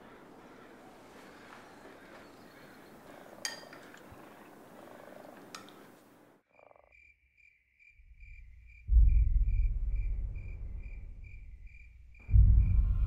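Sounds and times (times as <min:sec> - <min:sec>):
crickets chirping: 0:06.4 - 0:13.0
deep low rumble: 0:08.9 - 0:13.0.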